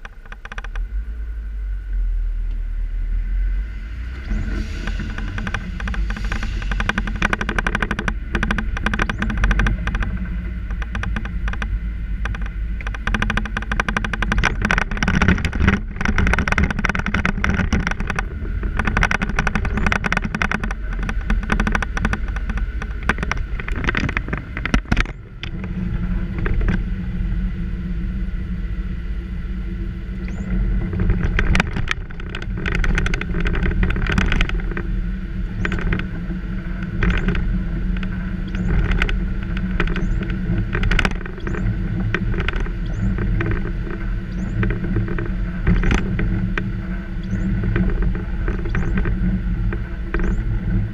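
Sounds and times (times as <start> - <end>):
car engine and tyre rumble: 0.0 - 50.9
rattling and clattering: 4.3 - 26.9, 30.2 - 50.9.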